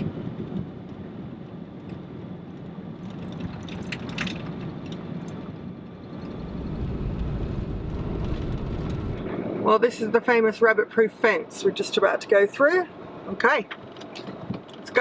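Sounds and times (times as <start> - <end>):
vehicle driving on dirt road: 0.0 - 9.8.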